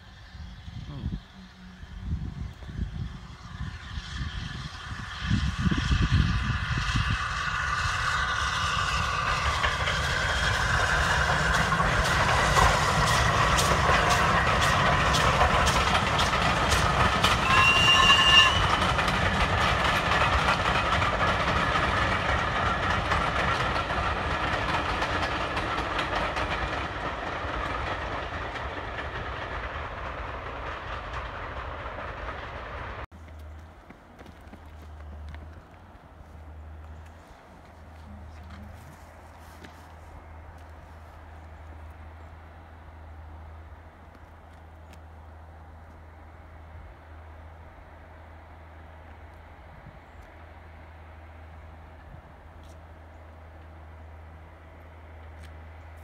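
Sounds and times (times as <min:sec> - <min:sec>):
train rumble: 0:00.0 - 0:56.0
wheels clicking over rail joints: 0:08.5 - 0:46.1.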